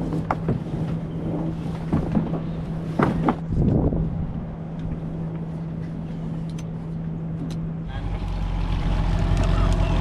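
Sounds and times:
rope knocks and rustles: 0:01.7 - 0:03.8
outboard motor running: 0:07.9 - 0:10.0.

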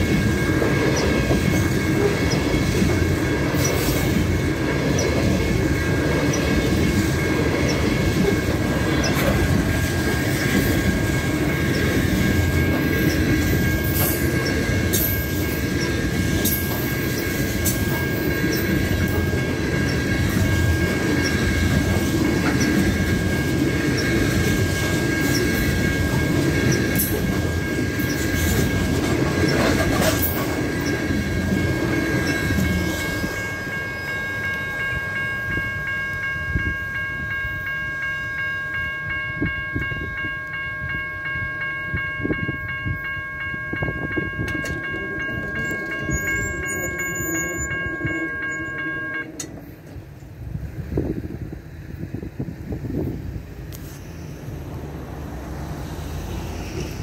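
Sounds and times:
train wheels rumbling on rail: 0:00.0 - 0:57.0
wheel squeal: 0:45.6 - 0:49.2.

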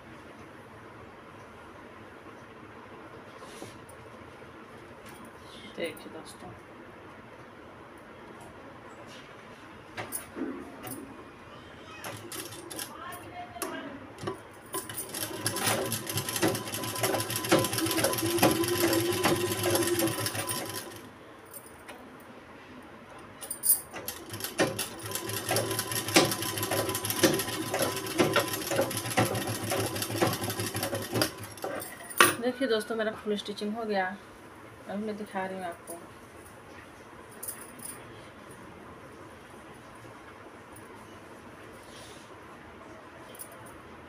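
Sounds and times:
sewing machine stitching: 0:12.0 - 0:12.9, 0:14.8 - 0:21.0, 0:24.0 - 0:31.9.

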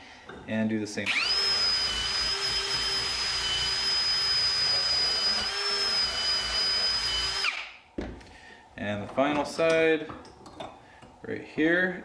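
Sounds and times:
drill motor whine: 0:01.1 - 0:07.7.

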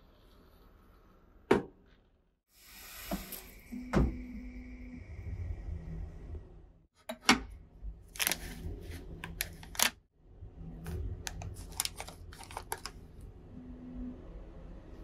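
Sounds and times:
plastic wrappers crinkling: 0:11.5 - 0:13.0.

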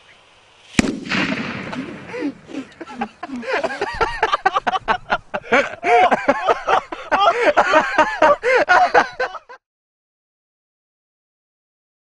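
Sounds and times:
loud laughter: 0:01.7 - 0:09.6.

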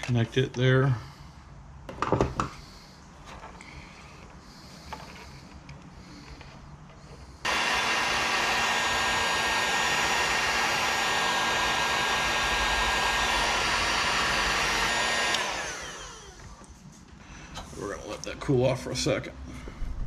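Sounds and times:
heat gun fan whirring: 0:03.6 - 0:16.9
heat gun switch click: 0:15.3 - 0:15.5.

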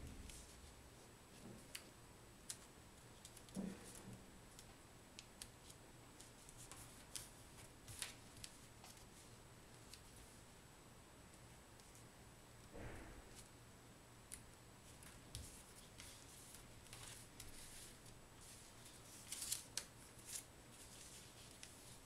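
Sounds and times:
paper being folded and creased: 0:05.6 - 0:10.2, 0:14.9 - 0:22.0
soft thump: 0:12.7 - 0:13.4.

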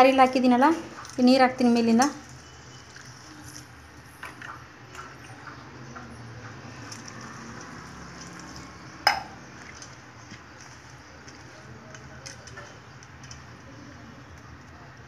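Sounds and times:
hand squishing wet rice: 0:02.2 - 0:04.4, 0:06.5 - 0:14.4.

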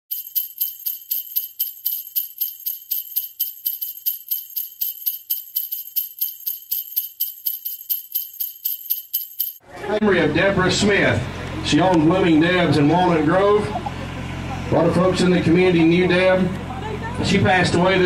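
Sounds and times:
sleigh bells jingling: 0:00.0 - 0:09.6.

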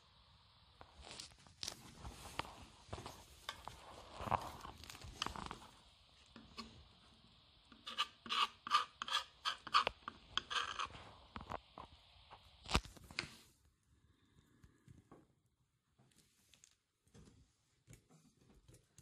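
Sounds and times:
knife scraping fish bones: 0:07.8 - 0:10.9.

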